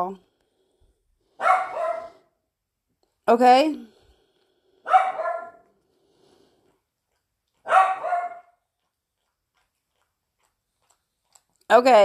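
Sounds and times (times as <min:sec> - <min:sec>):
dog barking: 0:01.4 - 0:02.3, 0:04.8 - 0:05.7, 0:07.6 - 0:08.6.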